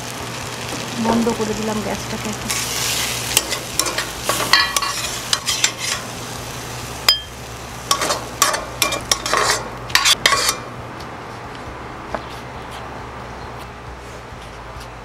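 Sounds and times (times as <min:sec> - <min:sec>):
pan sizzling: 0:00.0 - 0:10.7
metal spatula scraping pan: 0:02.5 - 0:06.1, 0:07.9 - 0:10.7.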